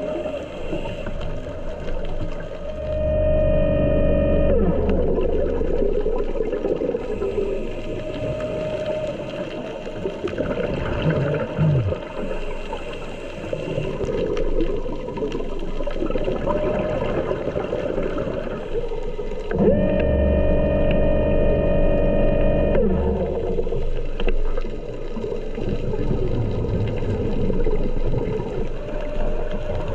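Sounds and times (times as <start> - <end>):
underwater crackling hiss: 0.0 - 2.9, 6.0 - 19.5
electric motor whine: 2.7 - 5.6, 19.5 - 24.3.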